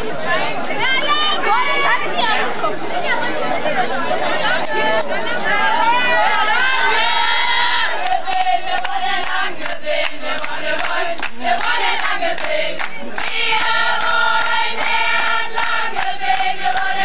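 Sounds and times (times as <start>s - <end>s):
crowd singing in unison: 3.2s - 17.0s
hand claps: 8.0s - 17.0s.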